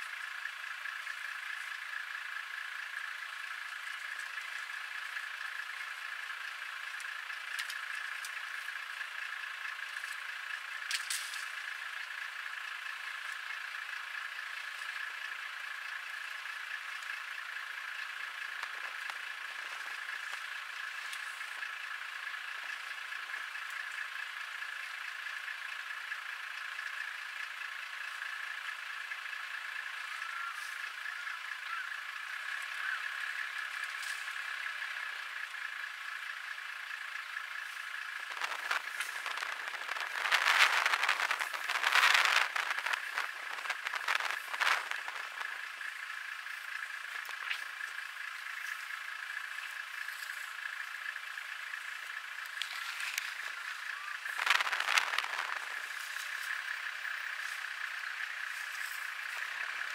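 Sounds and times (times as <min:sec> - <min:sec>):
insects droning: 0:00.0 - 0:59.9.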